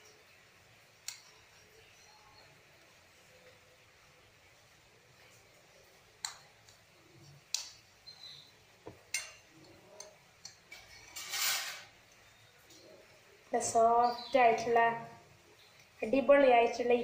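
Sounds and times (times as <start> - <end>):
rustling scrape: 10.9 - 11.9.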